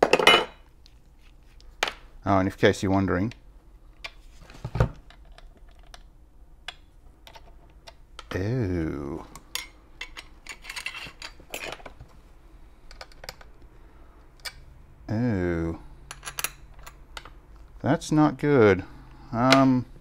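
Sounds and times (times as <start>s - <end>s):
small metal parts clicking and scraping: 9.5s - 11.9s.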